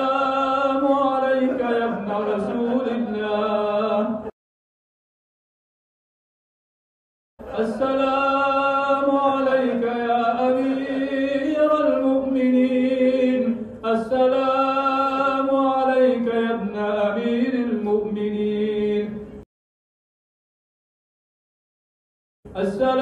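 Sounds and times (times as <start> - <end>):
person chanting unaccompanied: 0.0 - 4.3, 7.4 - 19.3.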